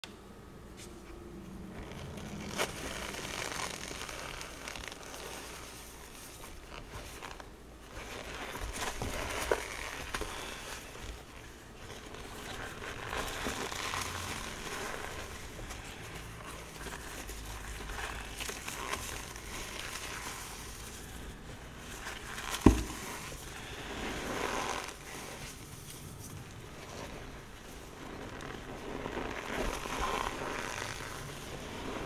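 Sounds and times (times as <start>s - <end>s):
hands crunching chalk: 2.0s - 32.0s.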